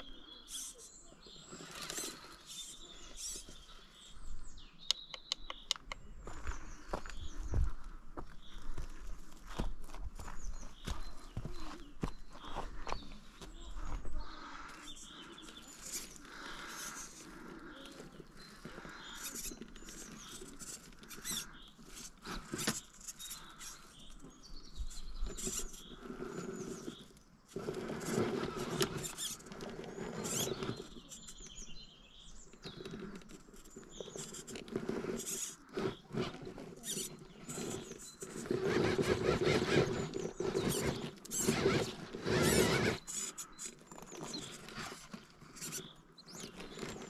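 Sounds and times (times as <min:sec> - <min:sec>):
rc car motor whining: 0:00.0 - 0:04.1, 0:14.2 - 0:31.8, 0:32.4 - 0:47.0
tyres scrabbling on stone: 0:12.5 - 0:31.6, 0:32.6 - 0:47.0.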